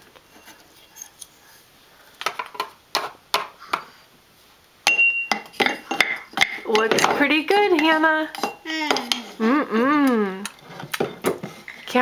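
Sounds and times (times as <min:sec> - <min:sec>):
high ringing clink: 0:04.9 - 0:06.0.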